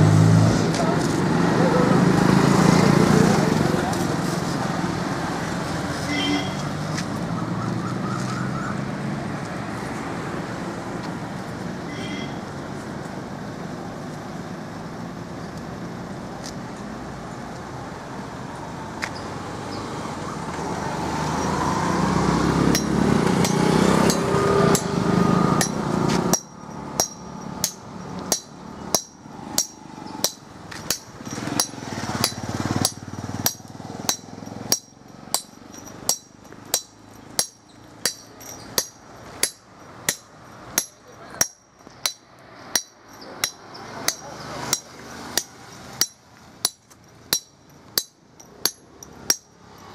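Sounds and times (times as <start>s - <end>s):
vehicle passing close: 0.0s - 13.6s, 17.8s - 41.4s, 42.0s - 49.9s
road traffic: 0.0s - 49.9s
hammer ringing on steel chisel: 22.7s - 24.9s, 25.6s - 49.9s.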